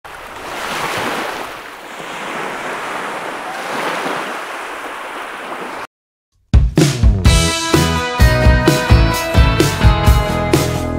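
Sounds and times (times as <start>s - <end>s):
small waves washing on beach: 0.1s - 5.9s
loud music: 6.6s - 10.9s.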